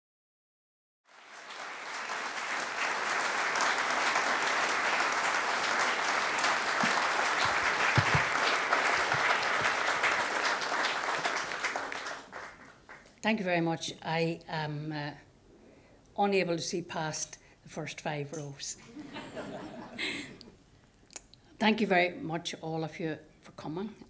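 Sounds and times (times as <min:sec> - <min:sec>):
audience applauding: 0:01.1 - 0:13.1.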